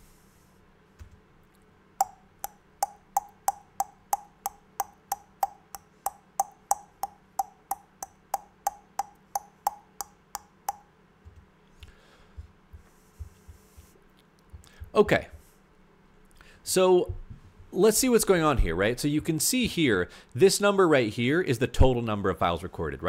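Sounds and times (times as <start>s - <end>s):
person making tongue clicks: 2.0s - 10.8s.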